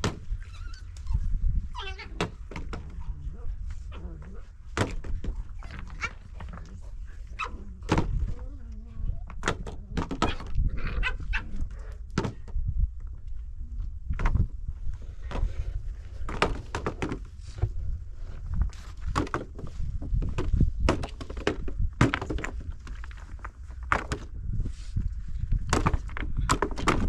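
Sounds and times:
steady low rumble: 0:00.0 - 0:20.9
knocks and thuds: 0:04.7 - 0:05.4, 0:19.0 - 0:22.7, 0:25.7 - 0:27.0.

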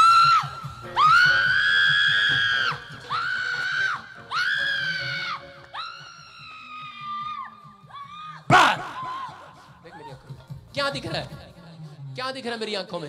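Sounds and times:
woman screaming: 0:04.3 - 0:09.6.

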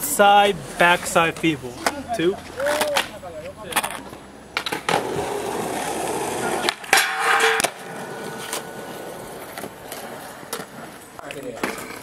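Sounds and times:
skateboard wheels rolling on concrete: 0:00.0 - 0:12.0
skateboard landing clack: 0:04.6 - 0:05.8, 0:06.5 - 0:10.8
skateboard trucks grinding metal bar: 0:04.6 - 0:11.0.

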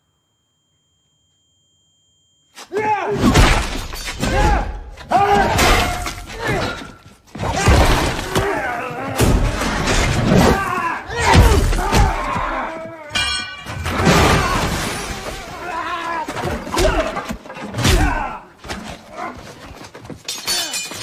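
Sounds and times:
men grunting and straining: 0:04.3 - 0:13.4, 0:14.0 - 0:20.0.

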